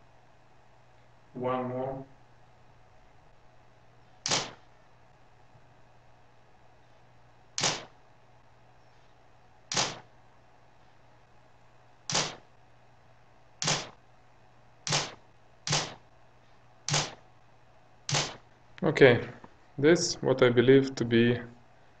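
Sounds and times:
camera shutter clicks: 9.7s - 10.0s, 14.9s - 16.0s.

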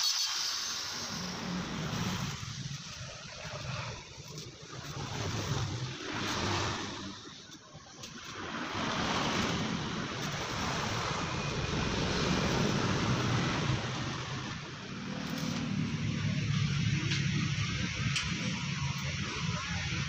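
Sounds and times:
arc welding hiss: 0.0s - 5.0s.

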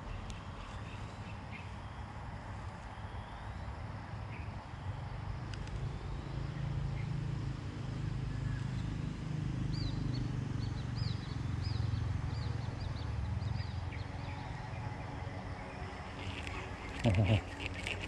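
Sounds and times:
bird chirping: 15.6s - 18.0s.

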